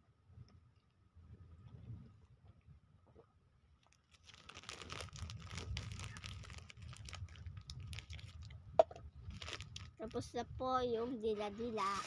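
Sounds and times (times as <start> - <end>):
plastic bag crinkling: 4.0 - 8.5, 9.2 - 10.0.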